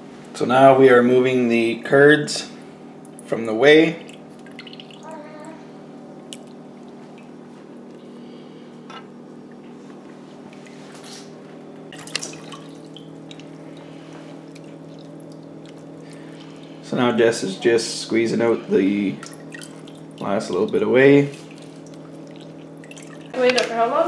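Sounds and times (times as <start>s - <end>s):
steady low hum: 0.0s - 24.0s
small splashes: 3.9s - 5.1s, 11.9s - 16.9s, 18.9s - 23.8s
liquid dripping into a pot: 11.9s - 16.7s, 19.1s - 23.4s.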